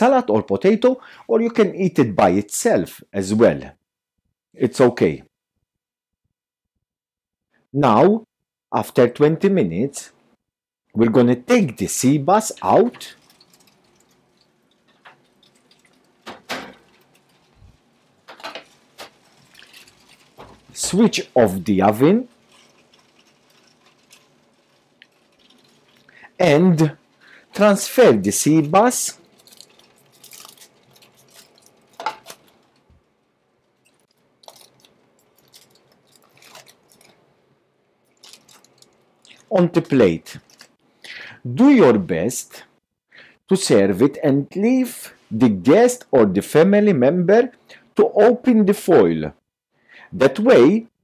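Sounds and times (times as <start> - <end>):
aluminium foil crinkling: 12.4 - 37.4, 38.0 - 40.8.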